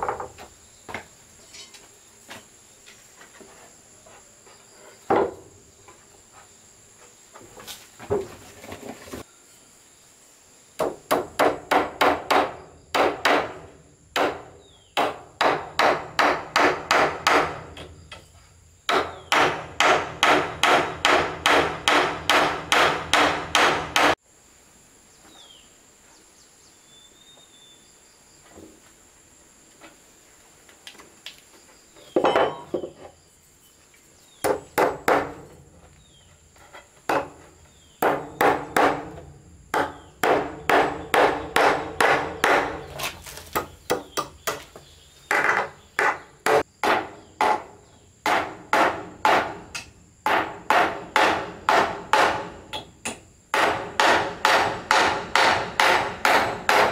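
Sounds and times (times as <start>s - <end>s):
faint high insect drone: 0.0s - 56.9s
hammer striking wood: 5.1s - 5.4s, 10.8s - 17.9s, 18.9s - 24.2s, 34.4s - 35.5s, 37.1s - 37.4s, 38.0s - 42.8s, 43.5s - 44.7s, 45.3s - 56.9s.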